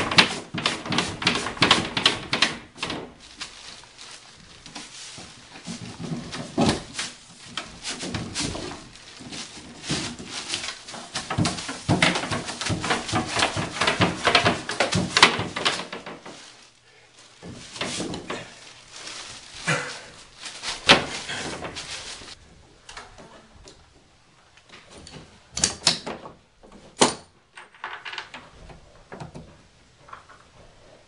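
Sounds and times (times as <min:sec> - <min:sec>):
plastic pipe knocks and scrapes: 0:05.2 - 0:16.5.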